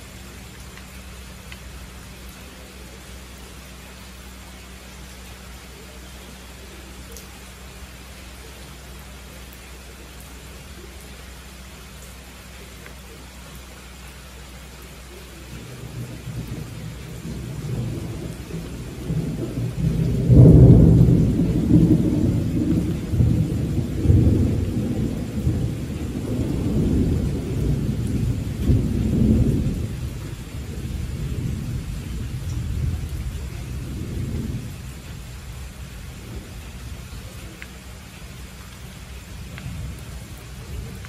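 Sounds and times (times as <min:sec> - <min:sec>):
steady rain hiss: 0:00.0 - 0:41.0
rolling thunder: 0:15.6 - 0:37.3.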